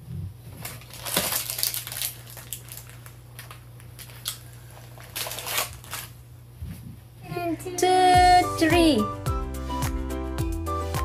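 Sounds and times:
baking paper crinkling: 0.4s - 6.3s.

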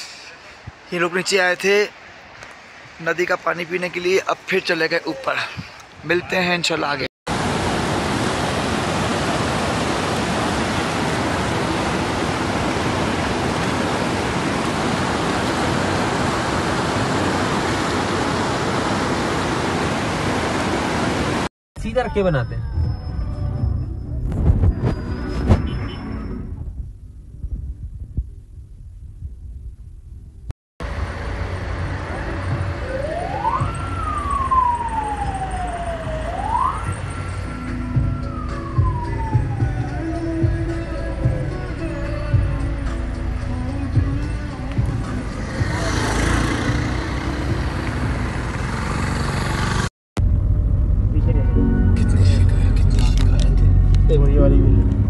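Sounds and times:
road and wind noise: 0.0s - 55.0s
river rushing over rocks: 7.3s - 21.5s
siren wailing: 32.1s - 41.0s.

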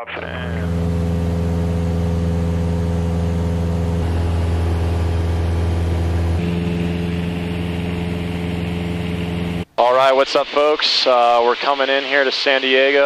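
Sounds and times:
airplane engine and propeller droning: 0.2s - 9.7s.

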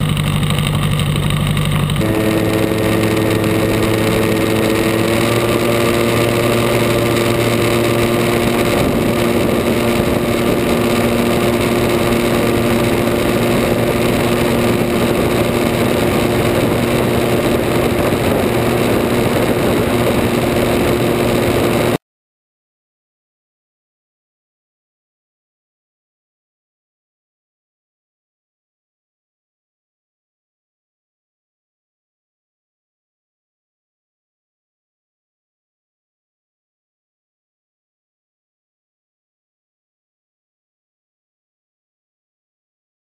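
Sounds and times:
aircraft engine and propeller drone: 0.0s - 22.0s
constant rush of noise: 0.0s - 22.0s.

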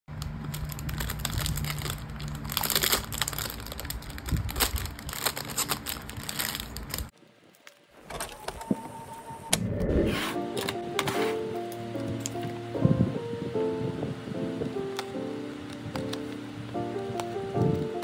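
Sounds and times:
plastic packaging crinkling: 0.2s - 7.9s.

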